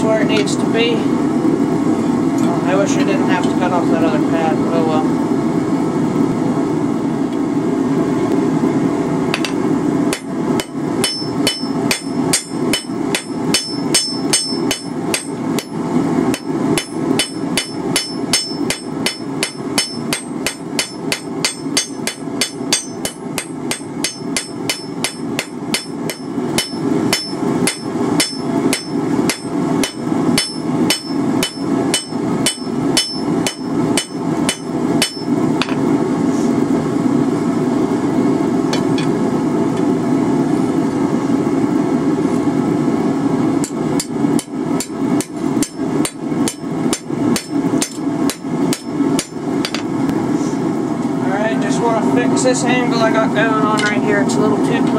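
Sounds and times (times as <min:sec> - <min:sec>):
steady low hum: 0:00.0 - 0:54.9
hammer blows ringing on anvil: 0:09.4 - 0:35.4, 0:43.6 - 0:49.9.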